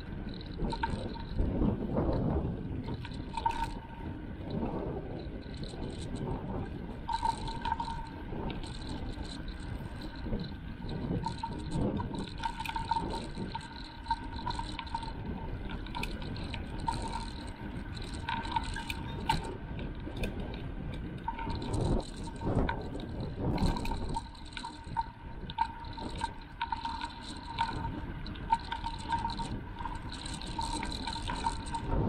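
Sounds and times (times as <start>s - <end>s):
wind buffeting microphone: 0.0s - 32.0s.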